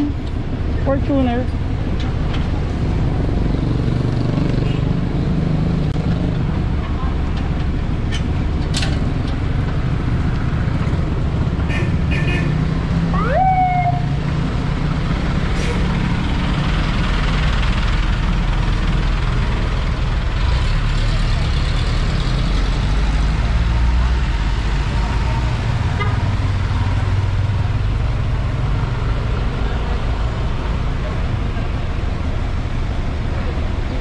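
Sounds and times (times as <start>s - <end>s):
city street traffic: 0.0s - 34.0s
short siren whoop: 13.2s - 14.2s.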